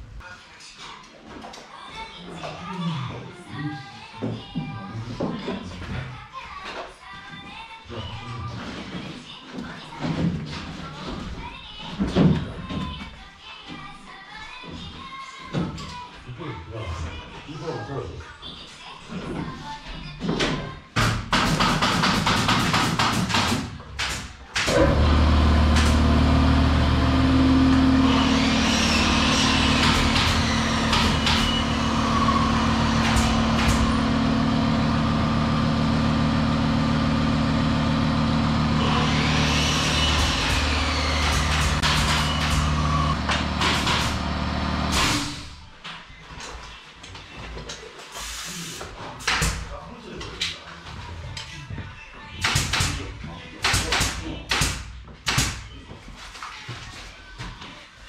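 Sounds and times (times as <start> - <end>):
air compressor droning: 24.7 - 45.6
loud rough noise: 24.7 - 45.6.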